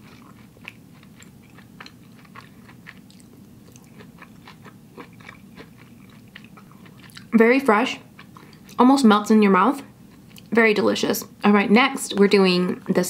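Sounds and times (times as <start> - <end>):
wet chewing mouth clicks: 0.0 - 7.3
low steady hum: 0.0 - 13.0.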